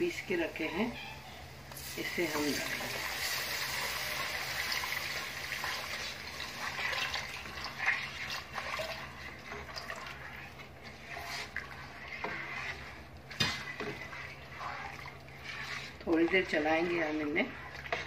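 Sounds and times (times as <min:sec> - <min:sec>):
puree pouring into pot: 0:02.5 - 0:13.0.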